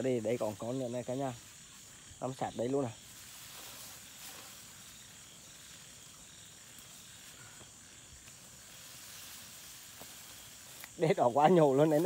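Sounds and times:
night insects chirring: 0.0 - 12.0.

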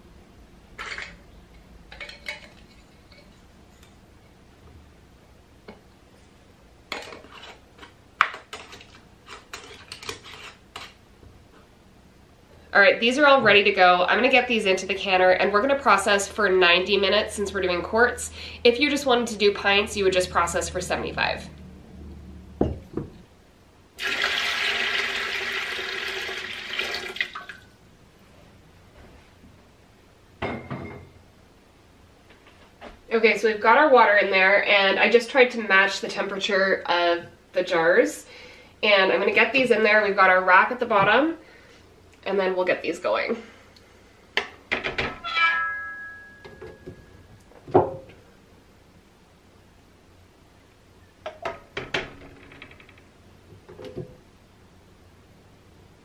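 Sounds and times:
water splashing into metal pot: 24.0 - 27.6.

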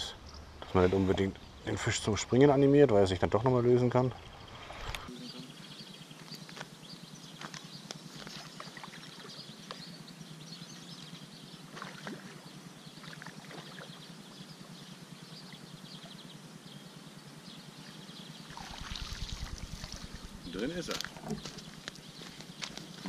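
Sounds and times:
water splashing and sloshing: 8.2 - 9.3, 11.7 - 13.9.

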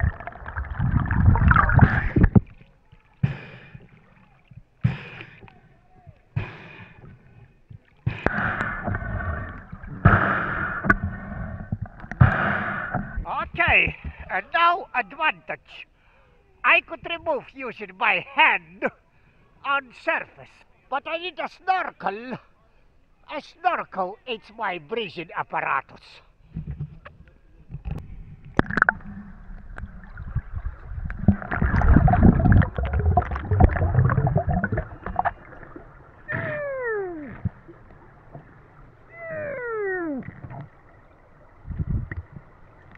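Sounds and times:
muffled underwater water rush: 0.0 - 14.3, 26.4 - 42.9.

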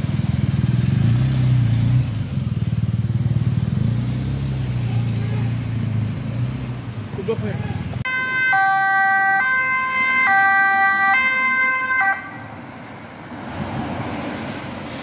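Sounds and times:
road traffic noise: 0.0 - 15.0
two-tone police siren: 8.1 - 12.6.

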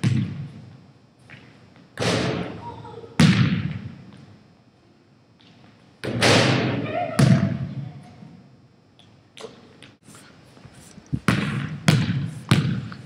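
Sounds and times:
basketball thudding in a gym: 0.0 - 0.7, 3.2 - 4.2, 6.0 - 7.8, 11.2 - 13.0.

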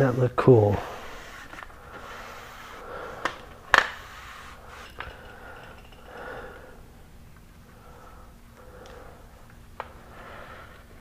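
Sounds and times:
tube rubbing in hands: 0.0 - 5.2.

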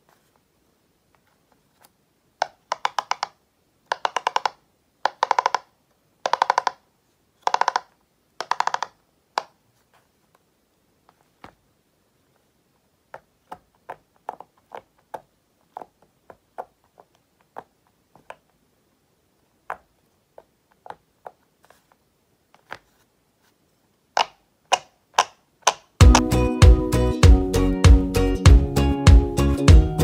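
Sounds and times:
pop-it toy bubbles popping: 2.4 - 5.7.

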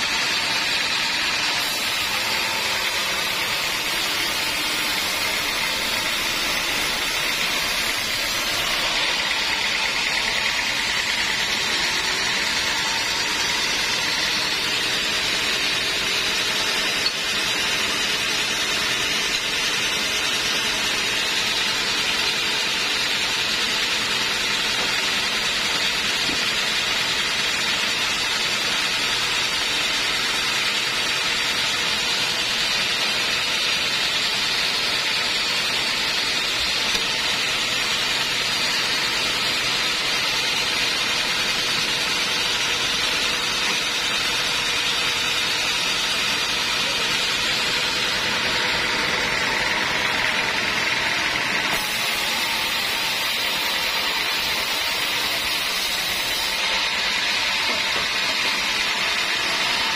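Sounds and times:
band sawmill whirring: 0.0 - 59.9.

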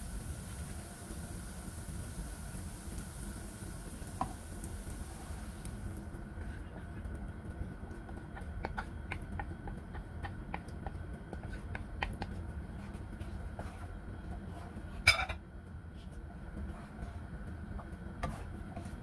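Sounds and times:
sauce popping in a frying pan: 0.0 - 6.3, 7.0 - 13.2.

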